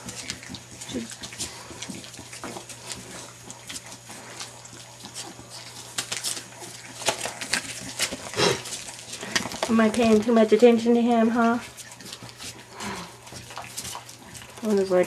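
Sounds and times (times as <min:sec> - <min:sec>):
puppies grunting: 0:00.0 - 0:15.0
newspaper rustling and crackling: 0:05.6 - 0:10.8.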